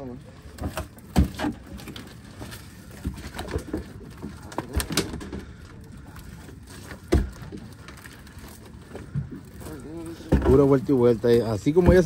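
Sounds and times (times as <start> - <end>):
knocks and thumps against a boat: 0.5 - 5.8, 6.7 - 7.8, 10.1 - 12.0.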